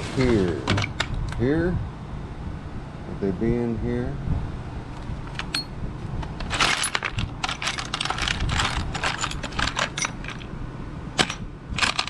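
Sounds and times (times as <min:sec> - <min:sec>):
metal washers clinking and rattling: 0:05.3 - 0:05.7, 0:06.3 - 0:10.5, 0:11.2 - 0:12.0.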